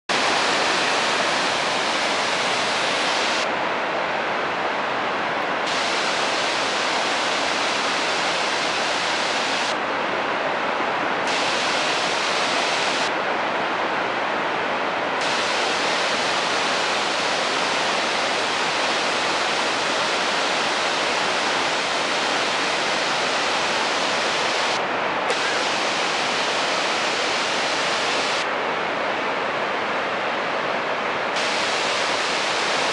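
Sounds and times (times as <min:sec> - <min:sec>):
waterfall rushing: 0:00.1 - 0:03.8, 0:05.5 - 0:09.8, 0:11.1 - 0:13.3, 0:15.0 - 0:28.6, 0:31.4 - 0:32.9.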